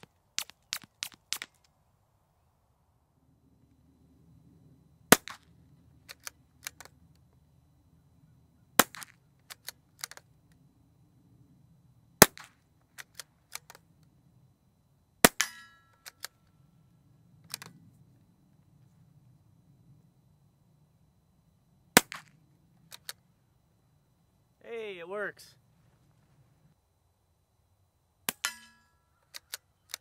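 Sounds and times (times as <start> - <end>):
rifle shots: 5.1 - 6.9, 8.8 - 9.6, 12.2 - 12.5
rifle bolt clicks: 6.0 - 7.0, 8.9 - 10.2, 16.0 - 16.4, 29.2 - 30.0
metallic ring: 15.4 - 16.0, 28.4 - 29.2.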